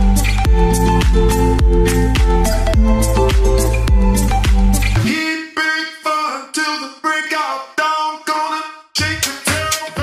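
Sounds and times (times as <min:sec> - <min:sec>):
electronic music with steady beat: 0:00.0 - 0:05.5, 0:09.0 - 0:10.0.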